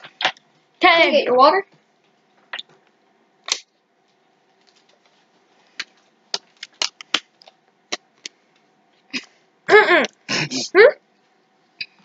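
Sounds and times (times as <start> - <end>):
plastic bottle crackling and clicking: 5.8 - 8.4.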